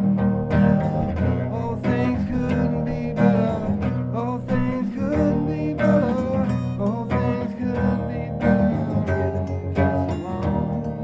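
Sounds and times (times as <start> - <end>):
acoustic guitar with delay: 0.0 - 11.0.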